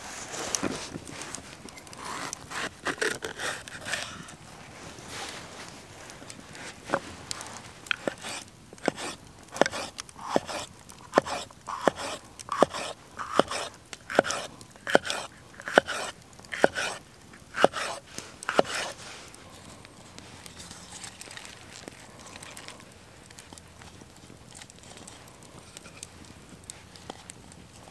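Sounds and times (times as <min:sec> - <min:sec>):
knife slicing pepper on board: 0:08.0 - 0:17.0, 0:17.6 - 0:19.0.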